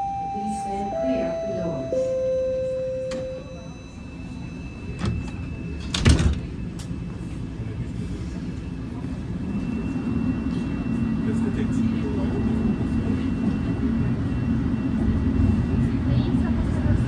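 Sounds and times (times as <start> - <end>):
stopped train humming: 0.0 - 17.0
train doors sliding open: 2.6 - 3.7, 4.5 - 7.0.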